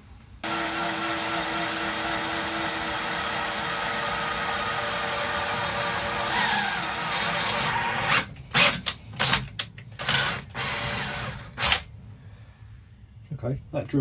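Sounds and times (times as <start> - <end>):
cordless drill boring steel: 0.4 - 8.7.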